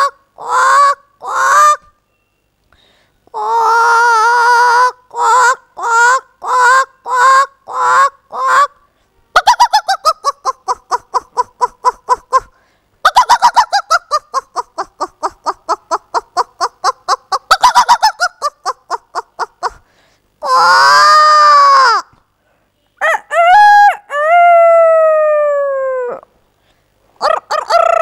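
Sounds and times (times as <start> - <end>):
woman imitating a chicken: 20.4 - 22.0, 23.0 - 26.2, 27.2 - 28.0.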